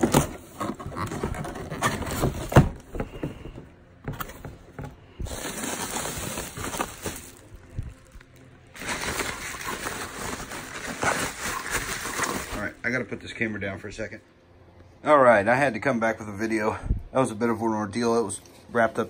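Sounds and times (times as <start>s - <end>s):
bubble wrap rustling and crinkling: 5.2s - 12.8s.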